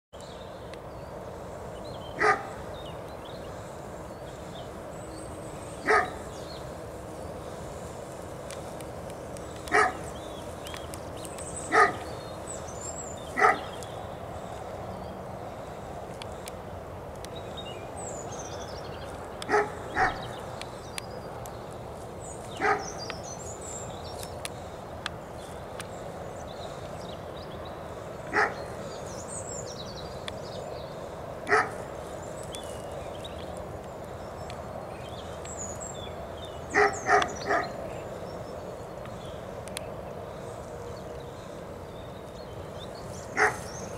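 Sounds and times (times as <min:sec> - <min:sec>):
dog barking: 0:02.2 - 0:02.5, 0:05.9 - 0:06.2, 0:09.7 - 0:10.0, 0:11.7 - 0:12.0, 0:13.4 - 0:13.7, 0:19.5 - 0:20.3, 0:22.6 - 0:22.8, 0:28.3 - 0:28.6, 0:31.5 - 0:31.7, 0:36.7 - 0:37.7, 0:43.4 - 0:43.6.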